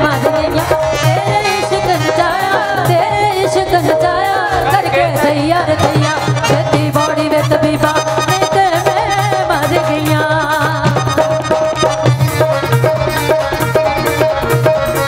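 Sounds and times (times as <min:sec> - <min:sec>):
women singing duet: 0:00.0 - 0:11.3
keyboard: 0:00.0 - 0:15.0
tabla beat: 0:00.0 - 0:15.0.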